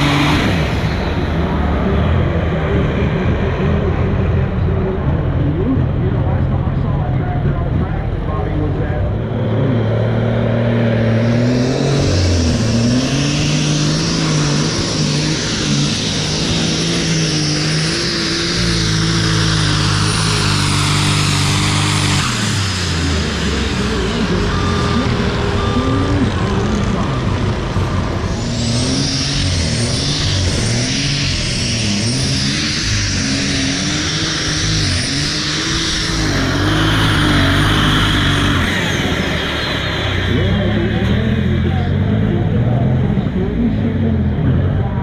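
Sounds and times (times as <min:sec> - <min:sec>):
diesel track loader working: 0:00.0 - 0:45.0
pulling tractor turbo whine revving: 0:00.0 - 0:45.0.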